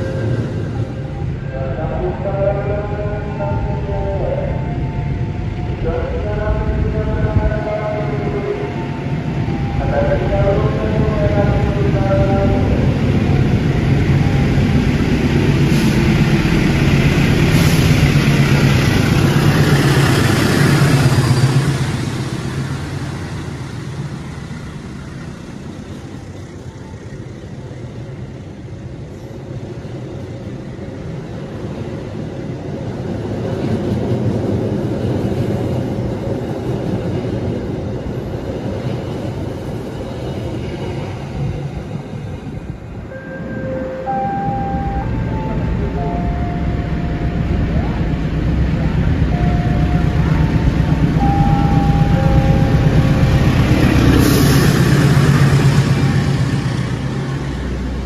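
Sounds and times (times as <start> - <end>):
locomotive rumble: 0.0 - 29.1, 33.9 - 58.0
passenger coaches rumbling past: 0.0 - 58.0.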